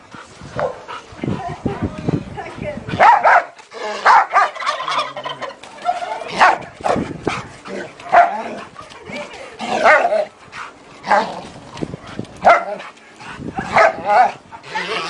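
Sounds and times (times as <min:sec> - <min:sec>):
dog barking: 0:00.6 - 0:00.8, 0:03.0 - 0:04.6, 0:06.3 - 0:06.6, 0:08.1 - 0:08.4, 0:12.4 - 0:12.8, 0:13.6 - 0:14.4
chicken squawking: 0:04.2 - 0:06.3.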